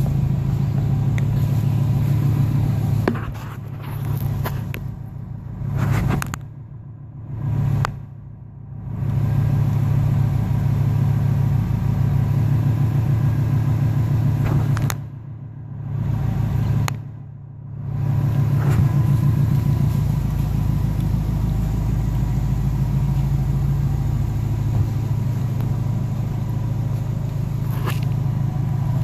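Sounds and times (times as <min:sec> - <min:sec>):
car engine idling: 0:00.0 - 0:29.0.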